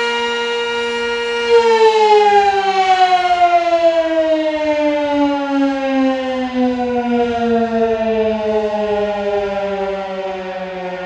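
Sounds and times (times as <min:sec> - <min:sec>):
warning siren winding down: 0:00.0 - 0:11.0.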